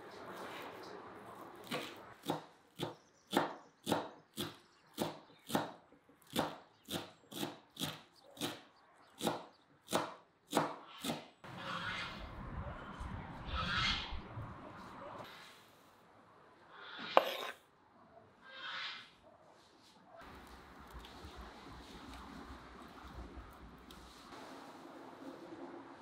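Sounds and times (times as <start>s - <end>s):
knife chopping on wooden board: 1.6s - 8.6s, 9.2s - 11.2s.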